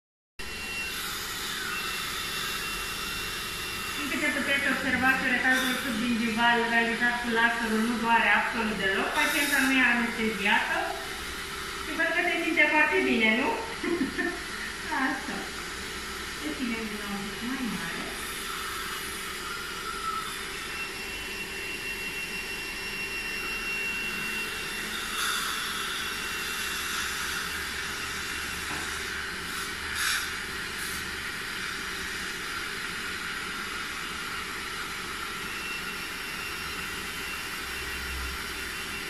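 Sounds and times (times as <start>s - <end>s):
dental suction hissing: 0.7s - 39.0s.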